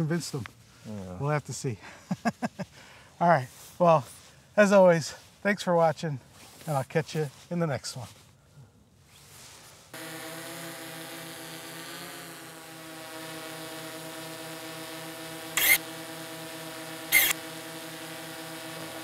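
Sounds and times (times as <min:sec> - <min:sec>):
drone propellers humming: 0:10.0 - 0:19.0
short sharp clicks: 0:15.6 - 0:15.8, 0:17.1 - 0:17.4.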